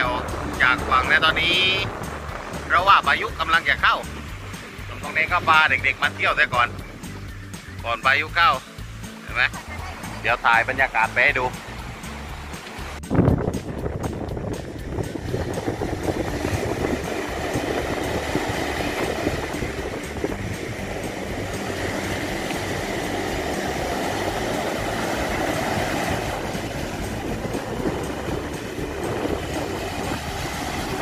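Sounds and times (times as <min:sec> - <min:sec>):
surf breaking on beach: 0:00.0 - 0:07.0, 0:09.2 - 0:31.0
wind buffeting microphone: 0:00.0 - 0:31.0.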